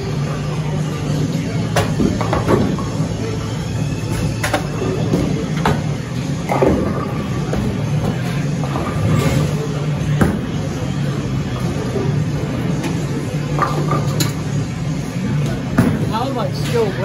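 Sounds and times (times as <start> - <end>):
bowling balls and pins clattering: 4.4 - 10.5.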